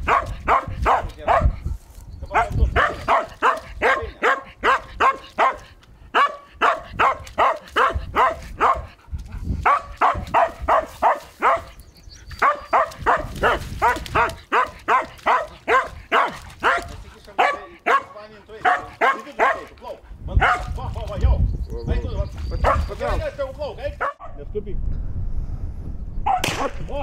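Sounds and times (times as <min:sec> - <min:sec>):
dog barking rapidly: 0:00.0 - 0:01.6, 0:02.3 - 0:09.0, 0:09.6 - 0:11.8, 0:12.4 - 0:19.8, 0:20.4 - 0:20.8, 0:22.6 - 0:22.9, 0:24.0 - 0:24.4, 0:26.3 - 0:26.5.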